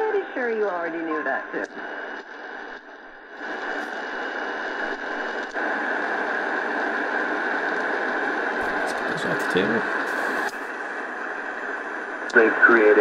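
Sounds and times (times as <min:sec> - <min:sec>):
radio static hissing: 0:01.5 - 0:13.0.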